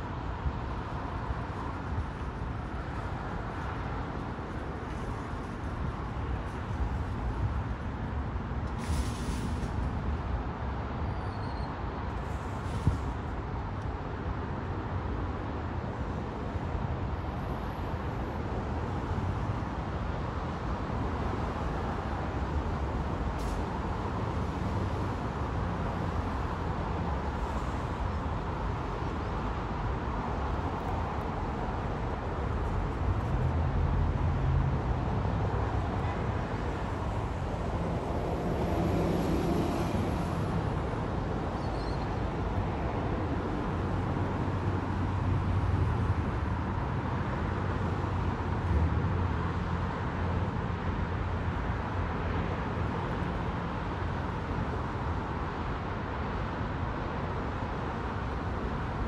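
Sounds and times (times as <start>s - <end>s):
road traffic rumble: 0.0s - 59.0s
vehicles passing: 12.0s - 59.0s.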